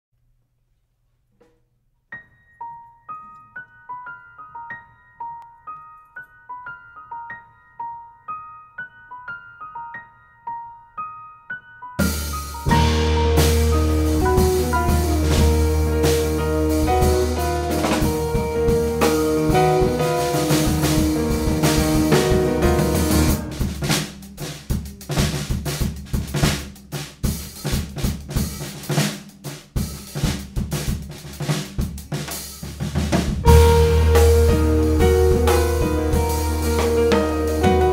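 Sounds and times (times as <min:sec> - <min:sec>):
solo keyboard jazz notes: 0:12.0 - 0:24.0, 0:33.4 - 0:37.9.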